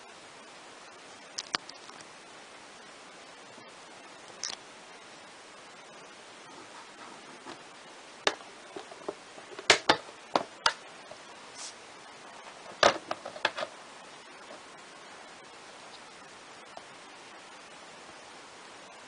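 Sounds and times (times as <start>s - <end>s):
steady faint hiss: 0.0s - 19.0s
plastic case clicks and knocks: 9.6s - 10.8s.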